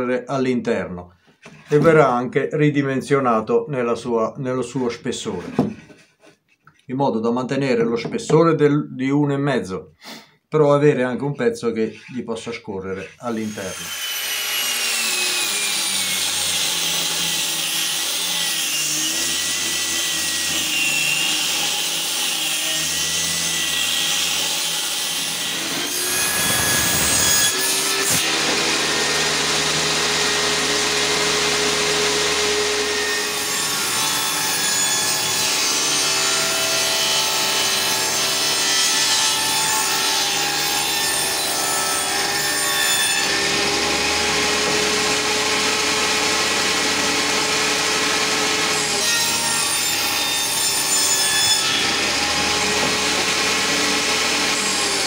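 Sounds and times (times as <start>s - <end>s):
angle grinder sanding wood: 11.8s - 33.4s, 43.2s - 55.0s
table saw running: 13.3s - 55.0s.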